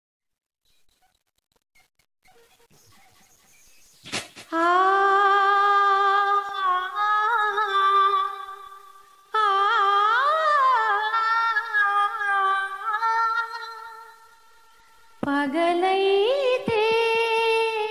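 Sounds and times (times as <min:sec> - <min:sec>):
woman singing without words: 0:04.5 - 0:14.4, 0:15.2 - 0:17.9.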